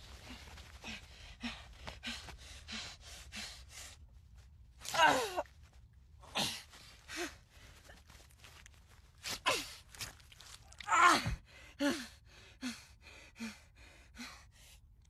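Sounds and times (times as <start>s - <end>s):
man breathing hard: 0.1s - 4.0s, 11.3s - 14.9s.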